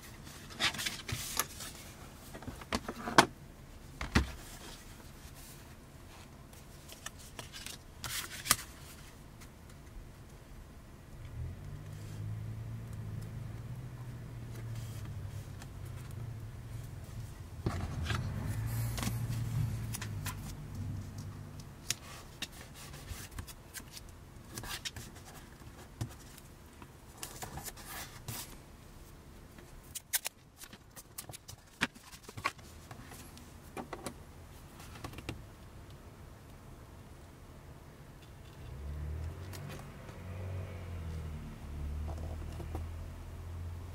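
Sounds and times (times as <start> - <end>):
paper and vinyl rustling: 0.0 - 10.4, 14.4 - 28.7, 29.6 - 33.9
low steady hum: 0.0 - 43.9.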